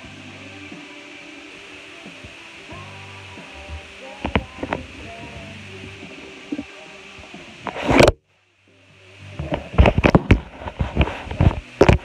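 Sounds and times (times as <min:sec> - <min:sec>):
music playing through phone: 0:00.0 - 0:12.0
knocks and rubbing of phone: 0:09.5 - 0:12.0.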